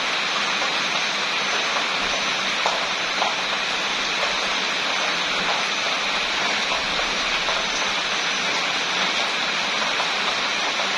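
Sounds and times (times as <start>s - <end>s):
steady rain: 0.0s - 10.9s.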